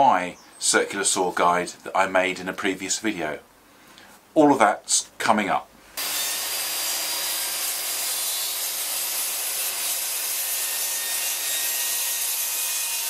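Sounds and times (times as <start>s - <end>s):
circular saw cutting board: 6.0s - 13.0s.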